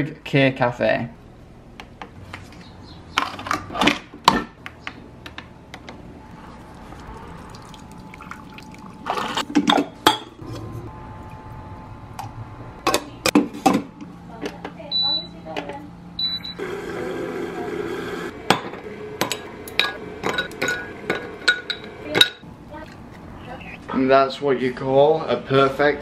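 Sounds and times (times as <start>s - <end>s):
coffee maker humming: 6.2s - 13.0s, 16.2s - 23.6s.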